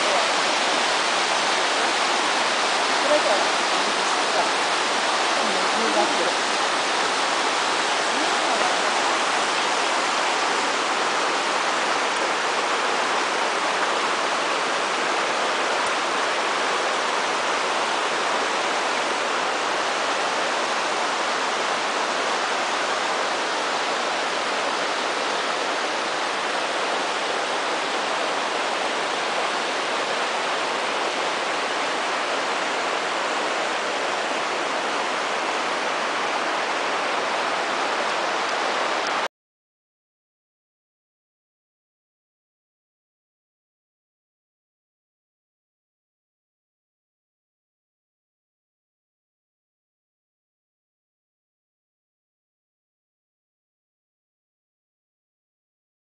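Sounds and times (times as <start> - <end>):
river rushing over rocks: 0.0 - 39.3.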